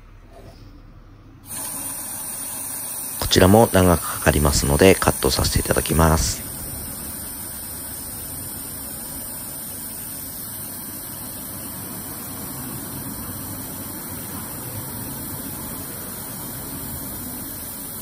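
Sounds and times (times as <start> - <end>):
spraying hiss of oil flush: 1.5 - 18.0.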